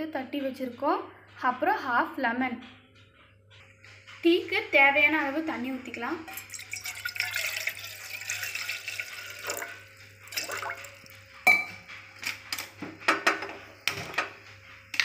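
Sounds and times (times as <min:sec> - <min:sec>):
water pouring into saucepan: 0:06.3 - 0:11.2.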